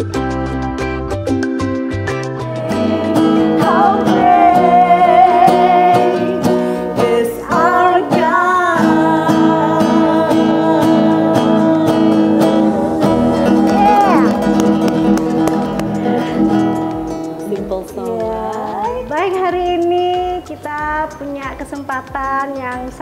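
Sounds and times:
strummed acoustic guitar: 0:00.0 - 0:19.9
woman singing: 0:02.4 - 0:12.8, 0:16.1 - 0:21.6.

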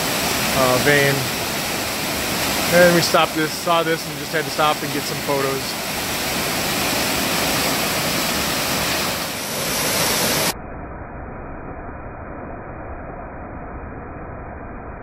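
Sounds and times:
waterfall rushing: 0:00.0 - 0:10.6.

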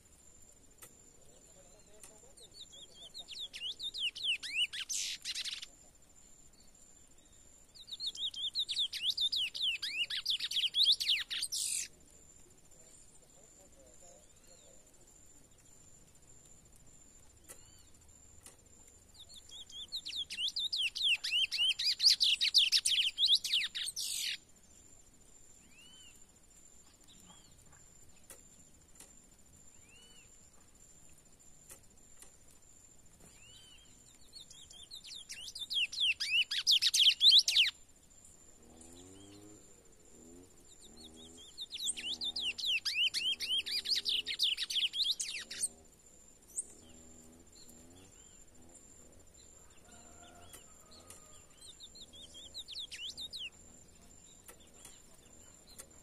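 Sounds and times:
finch singing warbling phrases: 0:01.4 - 0:05.8, 0:07.8 - 0:11.9, 0:19.3 - 0:24.4, 0:40.9 - 0:45.7, 0:52.0 - 0:53.6.

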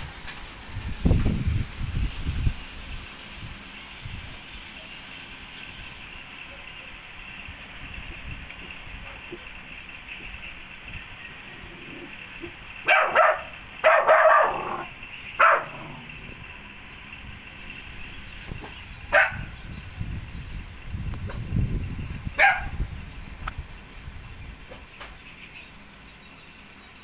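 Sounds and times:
dog barking: 0:12.8 - 0:15.9, 0:19.1 - 0:19.5, 0:22.4 - 0:22.8.

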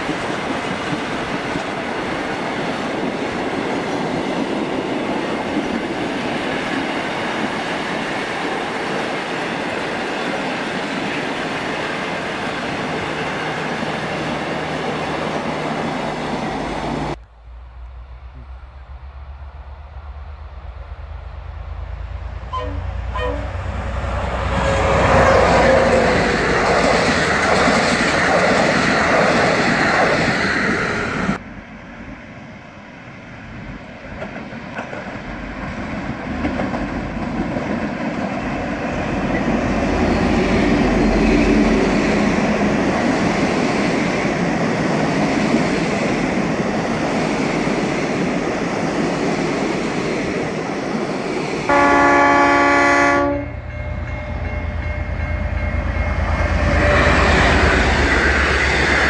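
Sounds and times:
train running on rails: 0:00.0 - 0:59.0
train horn blast: 0:22.4 - 0:26.3, 0:51.7 - 0:53.8.

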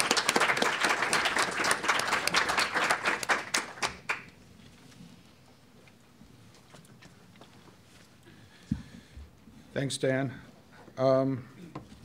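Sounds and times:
audience applauding: 0:00.0 - 0:04.4.

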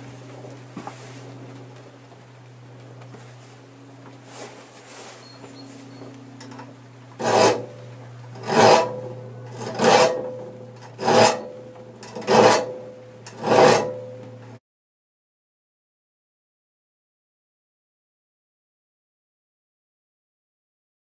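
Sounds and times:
file rasping on saw teeth: 0:07.2 - 0:07.8, 0:08.4 - 0:14.2.

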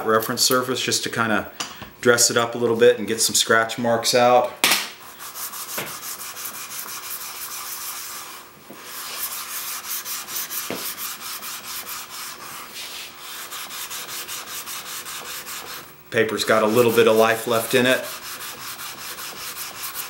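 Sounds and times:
metal scrubbing on sandpaper: 0:05.0 - 0:20.0.

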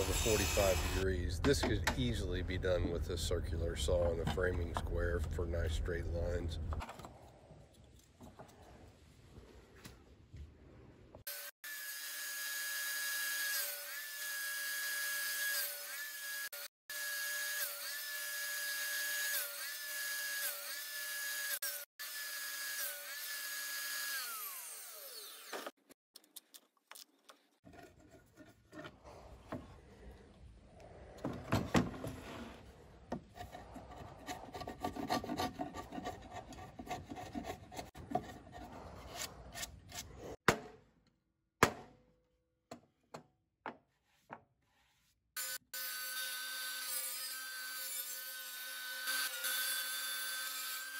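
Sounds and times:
table saw cutting wood: 0:00.0 - 0:01.0, 0:11.3 - 0:25.8, 0:45.4 - 0:50.9
chisel scraping and knocking wood: 0:03.9 - 0:05.2, 0:27.2 - 0:29.8, 0:31.1 - 0:40.4.

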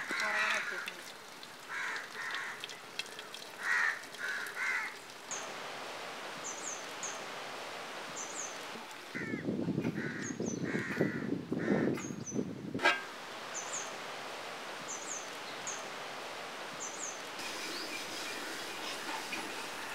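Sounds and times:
crows cawing: 0:00.0 - 0:01.0, 0:01.7 - 0:02.7, 0:03.6 - 0:05.0, 0:09.1 - 0:09.4, 0:10.0 - 0:12.0.

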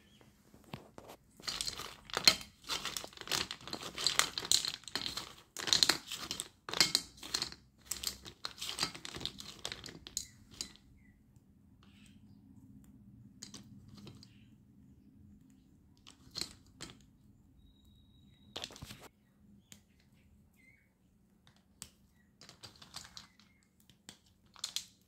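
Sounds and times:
pencils clattering on metal plate: 0:01.3 - 0:10.8, 0:13.4 - 0:14.3, 0:16.0 - 0:17.0, 0:22.4 - 0:25.0.

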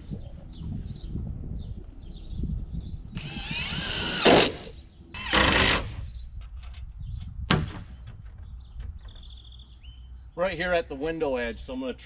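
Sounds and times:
power drill driving screws: 0:03.2 - 0:06.0.

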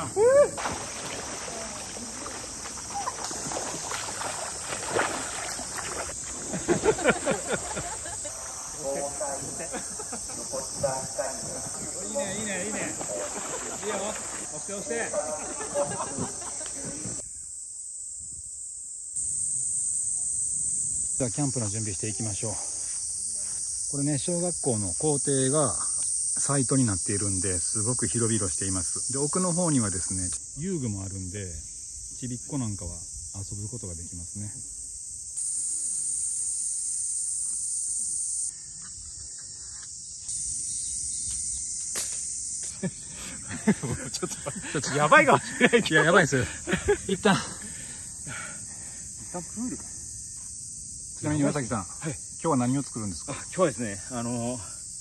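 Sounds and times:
voices: 0:00.0 - 0:17.2, 0:43.3 - 0:48.4
cicadas buzzing: 0:00.0 - 0:55.0.

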